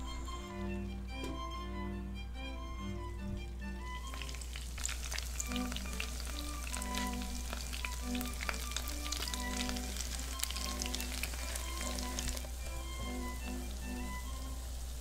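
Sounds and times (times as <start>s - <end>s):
background music: 0.0s - 15.0s
fat sizzling and crackling: 4.0s - 15.0s.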